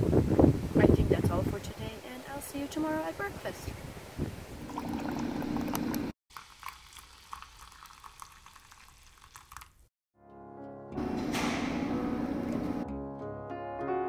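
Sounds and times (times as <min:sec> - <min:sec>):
food bubbling and crackling: 0:04.6 - 0:09.9.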